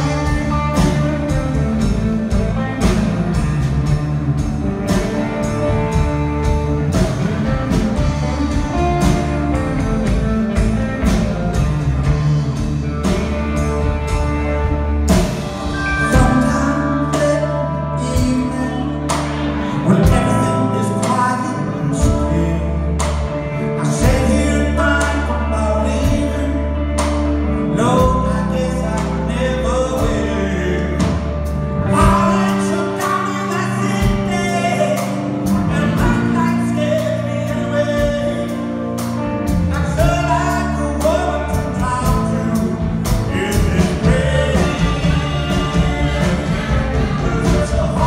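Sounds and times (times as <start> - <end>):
saxophone: 0.0 - 20.3, 34.9 - 48.0
bass: 0.0 - 48.0
drums: 0.0 - 48.0
electric guitars: 0.0 - 48.0
keyboard: 0.0 - 48.0.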